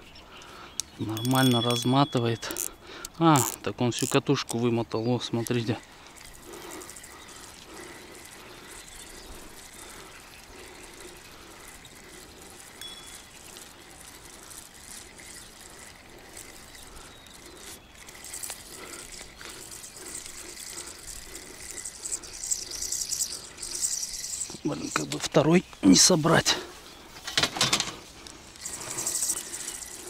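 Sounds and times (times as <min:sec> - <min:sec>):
soft regular pulse: 0:05.3 - 0:25.2, 0:27.9 - 0:30.0.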